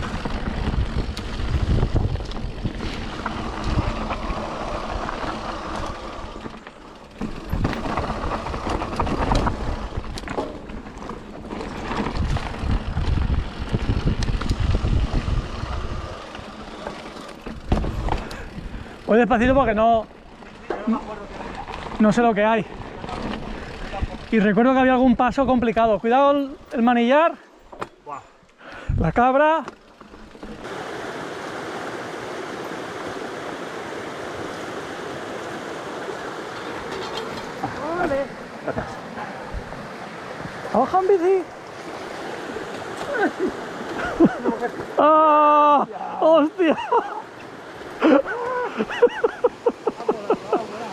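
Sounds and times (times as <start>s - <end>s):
wind on microphone: 0.0s - 5.1s, 12.0s - 16.2s
bike rattling clicks and knocks: 0.0s - 25.8s, 29.4s - 30.7s, 36.3s - 39.0s
bike tyre rumble on dirt: 0.0s - 26.7s, 28.9s - 50.9s
stream water rushing: 2.6s - 8.7s, 30.1s - 50.9s.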